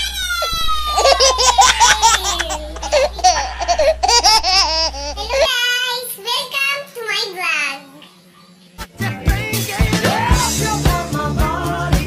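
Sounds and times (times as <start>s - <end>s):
low hum: 0.0s - 5.5s
woman laughing and shrieking: 0.0s - 5.5s.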